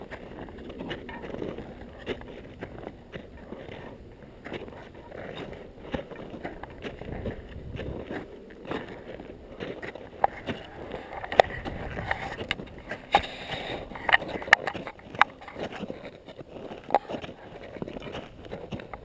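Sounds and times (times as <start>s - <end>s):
footsteps crunching in snow: 0.0s - 19.0s.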